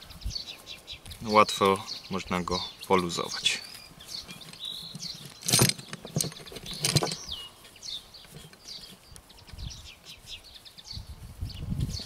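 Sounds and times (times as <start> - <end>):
small birds chirping: 0.0 - 12.0
rope rustling and rubbing: 2.9 - 12.0.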